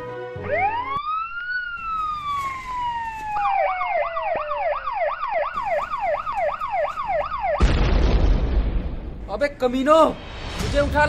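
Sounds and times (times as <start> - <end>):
police siren fast yelp: 0.4 - 7.6
police siren wail: 0.4 - 7.6.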